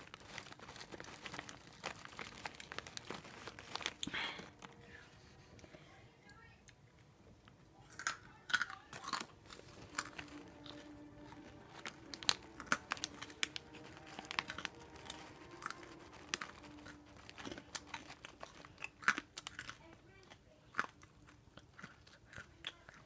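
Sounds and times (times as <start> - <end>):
person chewing crunchy snack: 0.0 - 4.9, 7.8 - 23.0.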